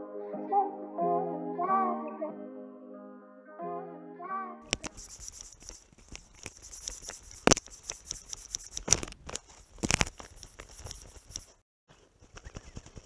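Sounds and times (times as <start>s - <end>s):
steady high hiss: 4.8s - 8.9s
fishing gear clicks and knocks: 7.4s - 11.5s.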